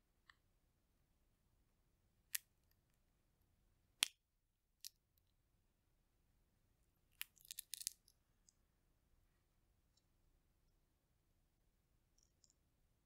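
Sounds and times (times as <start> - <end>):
chestnut shell cracking: 7.2 - 8.1.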